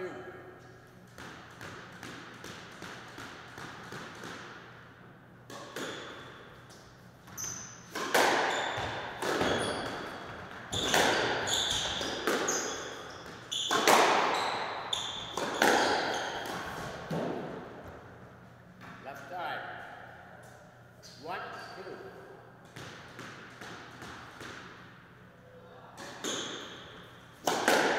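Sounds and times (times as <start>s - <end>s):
squash ball hitting rackets and wall: 1.0s - 18.1s, 22.6s - 25.1s, 25.9s - 27.9s
shoes squeaking on wooden floor: 10.7s - 16.4s.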